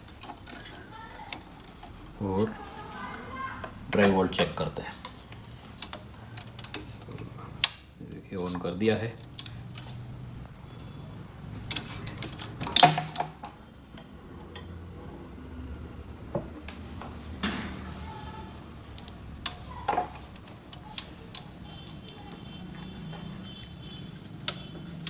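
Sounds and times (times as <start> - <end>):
clicks and knocks of handling: 0.0 - 2.0, 3.6 - 7.9, 11.6 - 14.7.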